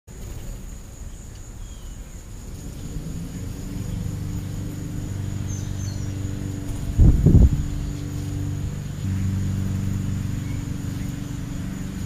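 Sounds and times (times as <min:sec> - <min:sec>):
low engine hum: 0:00.1 - 0:12.0
faint bird chirps: 0:01.0 - 0:06.7
high-pitched insect drone: 0:02.3 - 0:12.0.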